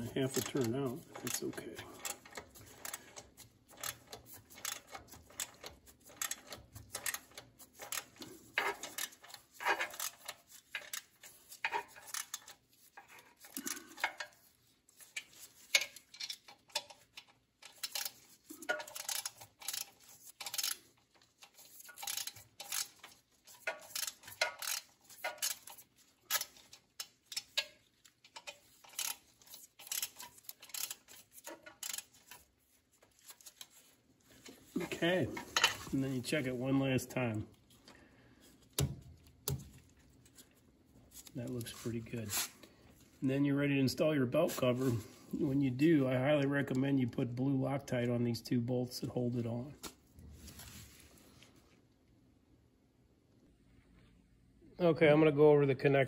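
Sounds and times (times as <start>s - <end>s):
ratchet wrench clicking: 2.0s - 8.1s, 12.0s - 12.5s, 17.7s - 18.2s, 18.8s - 20.8s, 21.4s - 27.7s, 28.4s - 32.4s.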